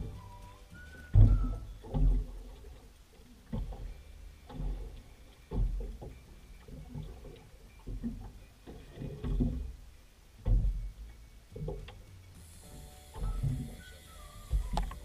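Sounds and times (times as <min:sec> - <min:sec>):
waves slapping boat hull: 0:00.0 - 0:09.8.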